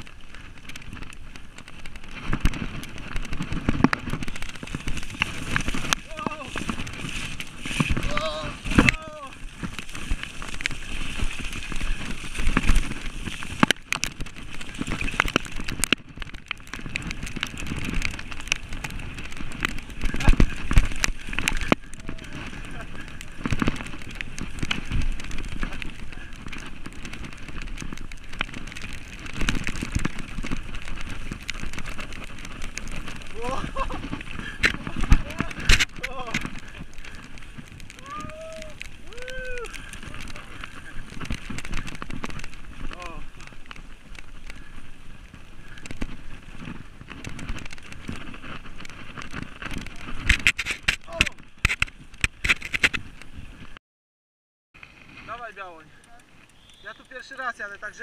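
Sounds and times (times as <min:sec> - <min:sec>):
bike rattling over bumps: 0:00.0 - 0:53.8
tyres hissing on wet grass: 0:04.3 - 0:15.7, 0:17.0 - 0:46.6, 0:54.9 - 0:58.0.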